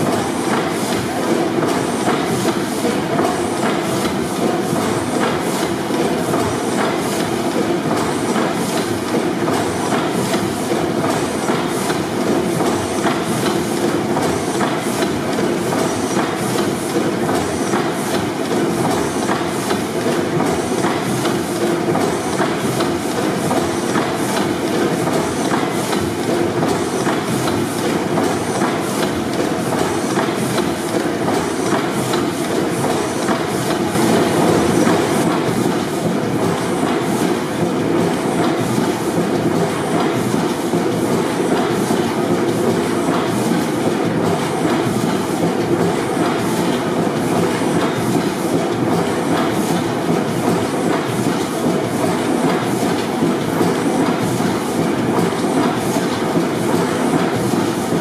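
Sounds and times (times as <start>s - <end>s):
gas engine rhythmic clatter: 0.0s - 58.0s.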